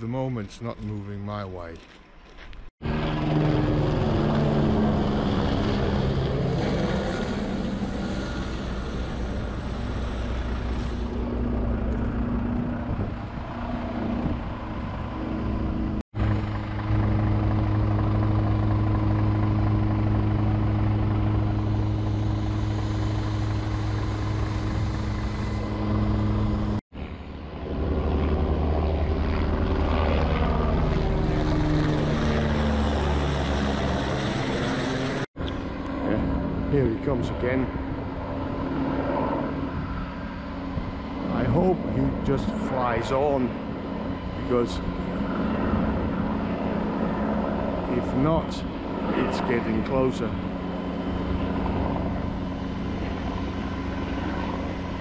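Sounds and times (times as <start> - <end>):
helicopter flying overhead: 0.0 - 55.0.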